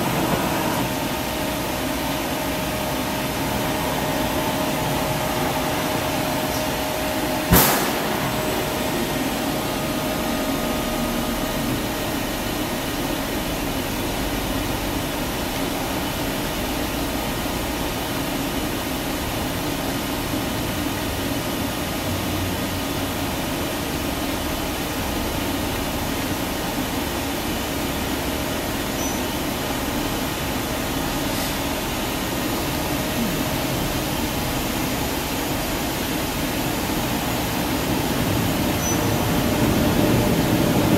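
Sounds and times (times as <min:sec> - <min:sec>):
machine hum and hiss: 0:00.0 - 0:40.9.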